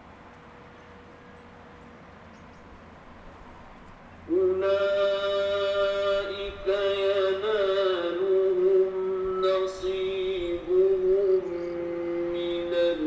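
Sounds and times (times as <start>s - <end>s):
man reciting melodically: 4.3s - 13.0s.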